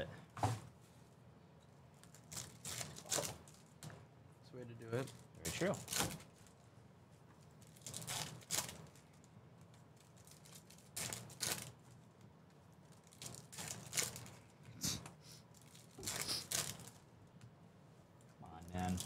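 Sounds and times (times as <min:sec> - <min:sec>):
wrappers tearing and crinkling: 0:02.0 - 0:03.7, 0:05.0 - 0:06.6, 0:07.5 - 0:09.3, 0:10.0 - 0:12.2, 0:12.8 - 0:14.4, 0:15.5 - 0:17.0.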